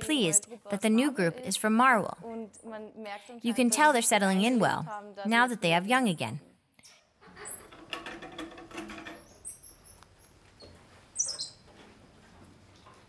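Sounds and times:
monkeys chirping: 9.1 - 11.7
soft rustling: 9.8 - 13.0.

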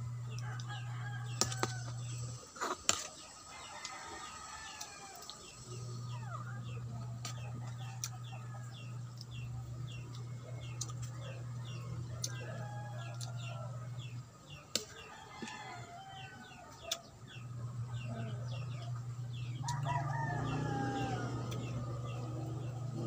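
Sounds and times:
steady low hum: 0.0 - 23.0
rooster crowing: 0.1 - 2.3, 3.4 - 5.6, 12.0 - 14.0, 15.0 - 16.8, 19.6 - 23.0.

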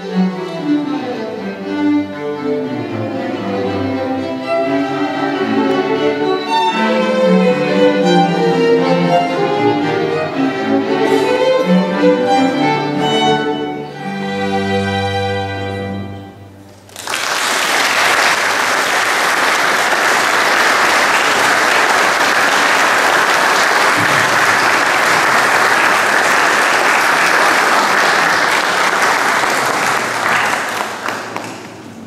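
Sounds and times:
audience applause: 16.8 - 32.0.

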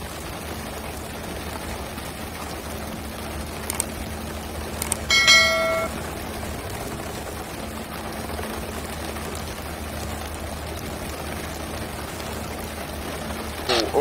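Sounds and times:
boat engine hum: 0.0 - 14.0
sea water rushing and splashing: 0.0 - 14.0
bright chime: 5.1 - 6.0.

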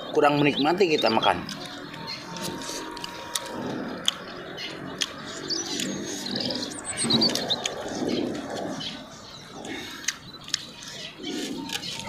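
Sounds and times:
birds chirping: 0.0 - 12.0
people chewing food: 0.0 - 12.0.

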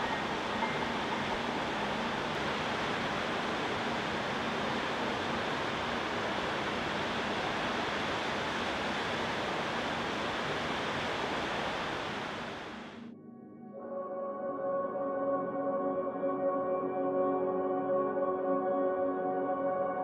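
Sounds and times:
rushing water: 0.0 - 13.0.

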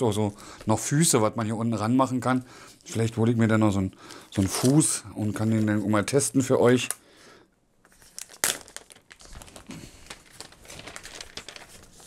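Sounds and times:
plastic wrap crinkling: 7.8 - 12.0.

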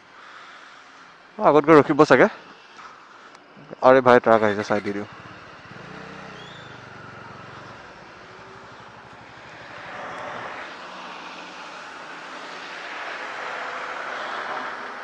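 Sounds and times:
motorcycle engine hum: 4.4 - 12.2.

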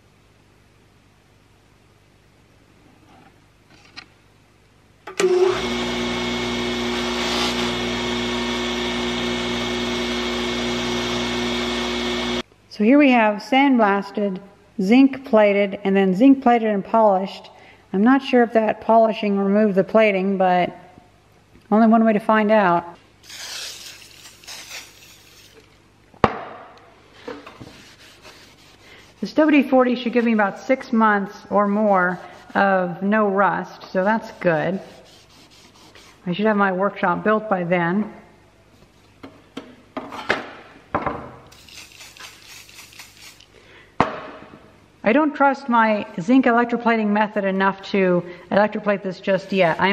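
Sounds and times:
bench grinder motor humming: 5.2 - 12.4
aerosol can spraying: 23.2 - 25.6, 41.5 - 43.5
rag wiping blade: 27.5 - 30.6, 34.0 - 36.3.

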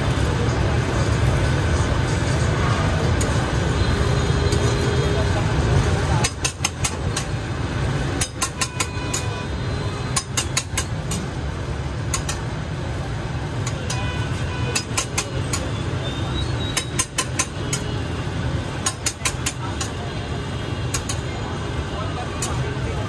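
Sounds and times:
metal spatula clinking on griddle: 8.2 - 9.4, 12.1 - 12.5, 13.6 - 15.8, 16.7 - 17.9.

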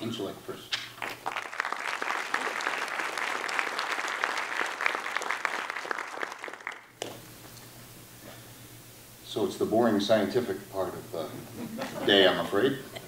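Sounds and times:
audience applauding: 1.0 - 7.0.

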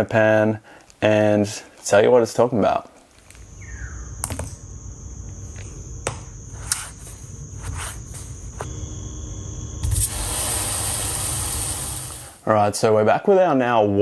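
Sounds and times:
low hum: 3.2 - 12.4
high-pitched whine: 3.3 - 12.2
lower steady tone: 3.3 - 12.2.

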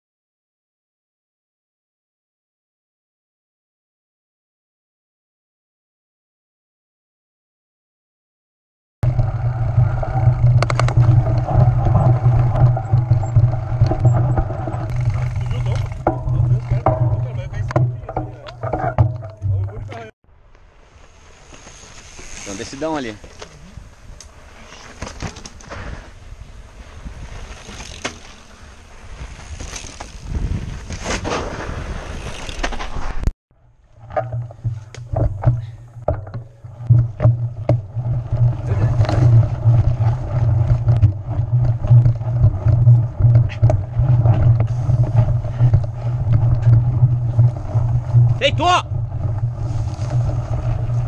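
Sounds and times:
bike rattling over bumps: 9.0 - 20.1, 20.9 - 51.0
sharp bike clicks: 27.4 - 28.6
wind rumble on microphone: 29.0 - 31.0, 34.2 - 51.0
wind buffeting microphone: 30.2 - 30.9.

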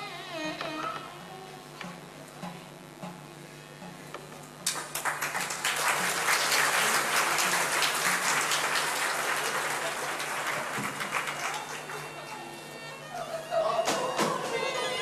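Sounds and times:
audience applause: 4.6 - 12.8.

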